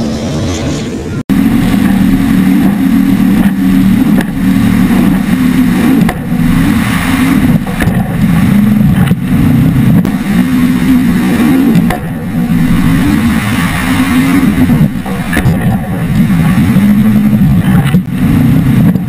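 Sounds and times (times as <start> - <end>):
boat engine drone: 0.0 - 19.0
wind: 0.0 - 19.0
rushing water: 1.3 - 19.0
sharp knocks: 1.8 - 5.3, 6.0 - 6.4, 7.5 - 8.3, 11.8 - 12.4.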